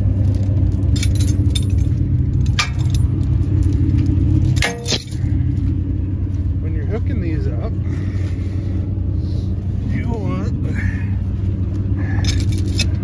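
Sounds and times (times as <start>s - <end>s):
metallic chain clinks: 0.0s - 5.4s, 11.8s - 13.0s
truck engine idling: 0.0s - 13.0s.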